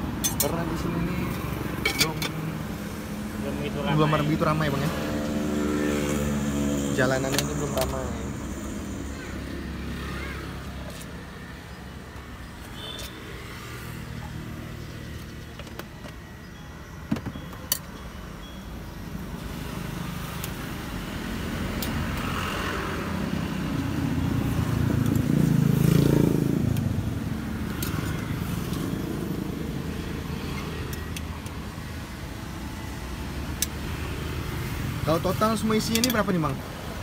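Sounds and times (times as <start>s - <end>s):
vehicle passing: 2.4s - 11.6s, 20.9s - 31.2s.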